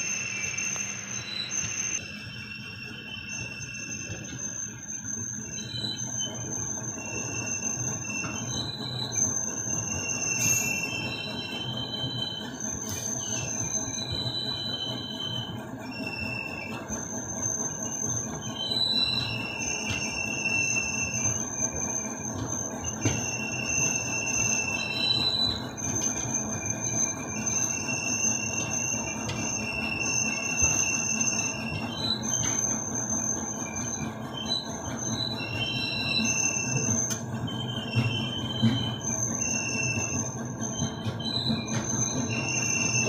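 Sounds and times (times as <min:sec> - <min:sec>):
train wheel squeals: 0:00.0 - 0:43.0.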